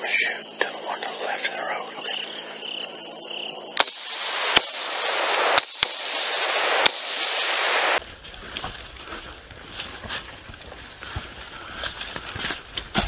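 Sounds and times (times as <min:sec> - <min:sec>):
loud rushing hiss: 0:04.0 - 0:08.1.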